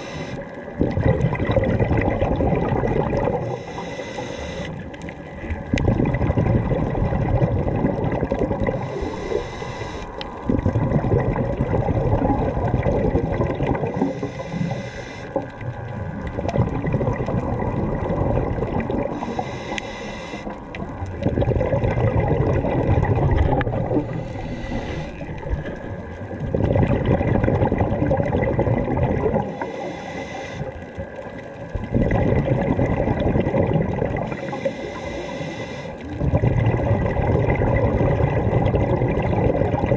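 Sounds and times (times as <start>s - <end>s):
hissing regulator inhales: 0.0s - 0.5s, 3.5s - 4.8s, 8.8s - 10.2s, 13.9s - 15.4s, 19.1s - 20.6s, 24.0s - 25.4s, 29.4s - 30.8s, 34.3s - 36.1s
bubbling exhaled air underwater: 0.0s - 39.9s.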